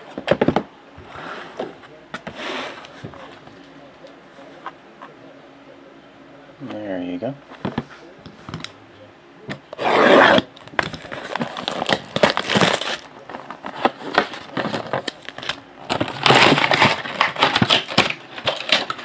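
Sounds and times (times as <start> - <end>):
shrink wrap crinkling: 10.7 - 19.0.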